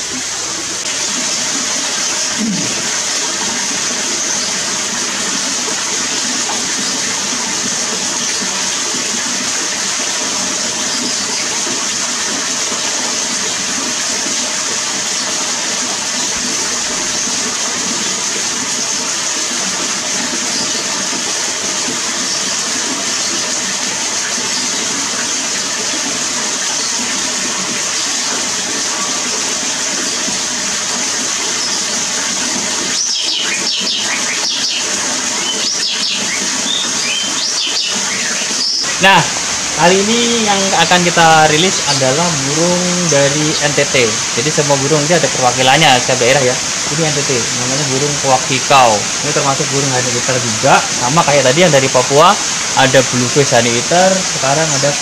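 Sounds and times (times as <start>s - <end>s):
water rushing over rocks: 0.0s - 55.0s
bird chirps: 33.0s - 39.0s.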